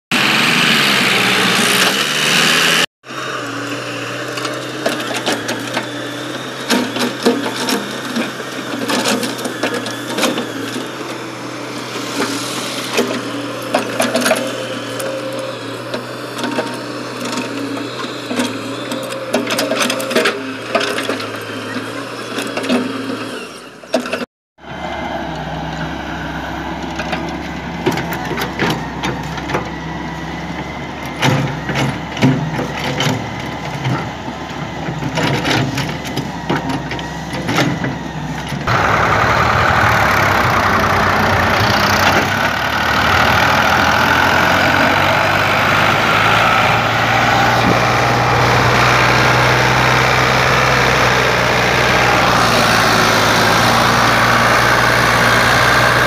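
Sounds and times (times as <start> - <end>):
diesel engines running: 0.1 - 56.0
excavator bucket clanking: 4.4 - 10.8, 31.0 - 38.9.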